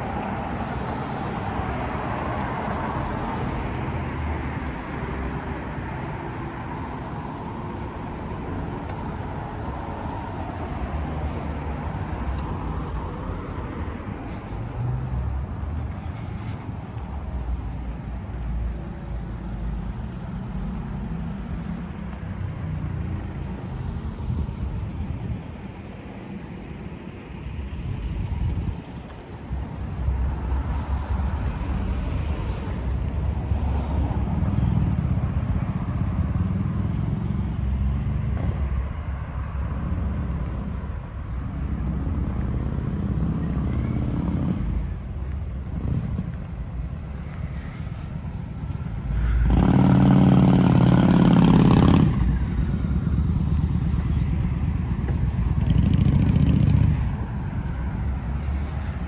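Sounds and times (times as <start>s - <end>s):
vehicle engines passing: 0.0s - 59.0s
loud engine passing: 49.0s - 58.8s.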